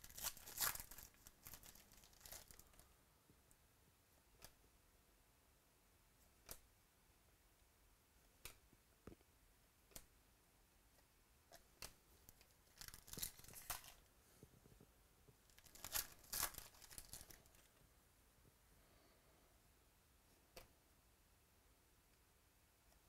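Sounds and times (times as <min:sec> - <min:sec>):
foil wrapper tearing: 0:00.0 - 0:02.8, 0:12.8 - 0:14.0, 0:15.6 - 0:17.7.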